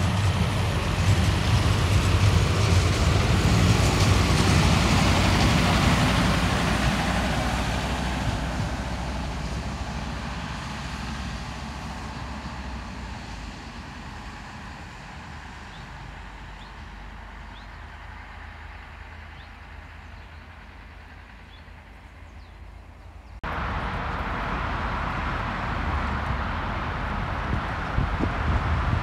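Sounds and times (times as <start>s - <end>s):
steady rushing noise: 0.0s - 17.0s, 23.4s - 29.0s
diesel railcar running: 0.0s - 29.0s.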